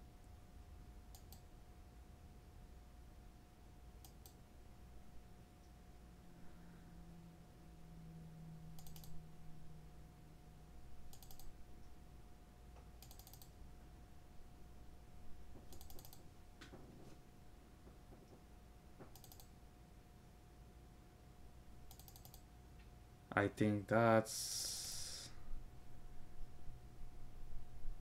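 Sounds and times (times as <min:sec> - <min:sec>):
faint electrical hum: 0:00.0 - 0:28.0
computer mouse clicking: 0:01.1 - 0:01.5, 0:04.0 - 0:04.4, 0:08.7 - 0:09.2, 0:11.1 - 0:11.5, 0:12.8 - 0:13.6, 0:15.6 - 0:16.2, 0:19.0 - 0:19.5, 0:21.9 - 0:22.5.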